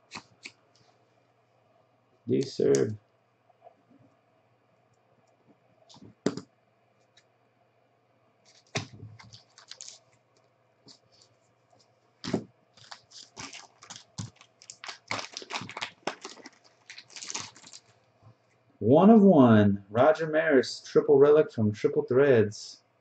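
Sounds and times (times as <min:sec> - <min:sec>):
plastic wrapping crinkling and tearing: 0:08.5 - 0:10.1, 0:12.2 - 0:18.0.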